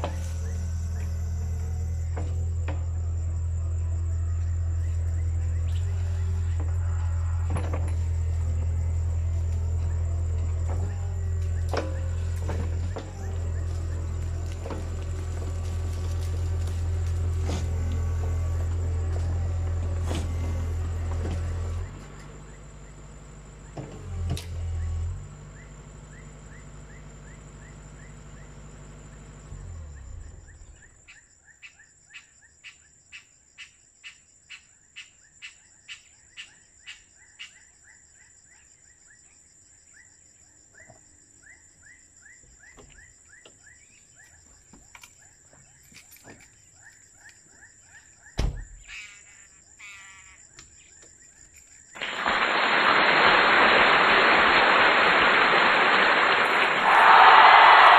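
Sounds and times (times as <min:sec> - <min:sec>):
excavator diesel engine idling: 0:00.0 - 0:30.7
insect whine: 0:00.0 - 0:57.9
loud rush of hiss: 0:52.0 - 0:57.9.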